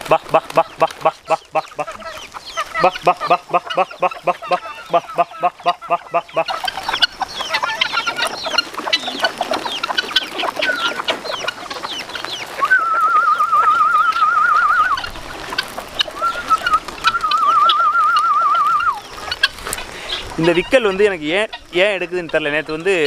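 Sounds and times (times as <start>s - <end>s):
chickens clucking and chicks peeping: 0.0s - 23.0s
trilled whistle: 12.6s - 15.0s, 16.2s - 19.0s.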